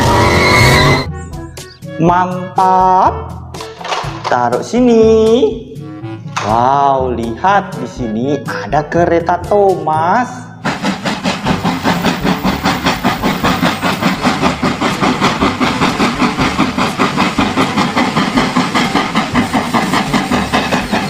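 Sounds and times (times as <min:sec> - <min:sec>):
steam train chugging: 0:00.0 - 0:02.9, 0:03.6 - 0:06.6, 0:10.6 - 0:21.0.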